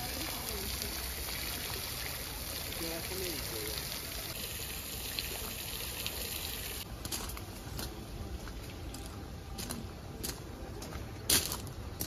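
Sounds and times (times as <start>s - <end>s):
footsteps crunching on gravel: 6.9s - 12.0s.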